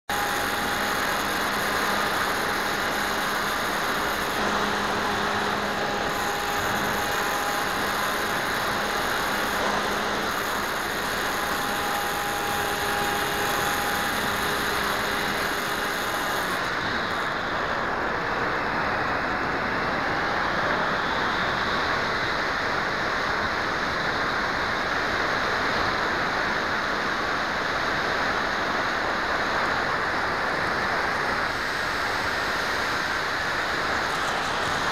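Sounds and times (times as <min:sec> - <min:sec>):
faint steady tones: 0:00.1 - 0:21.7.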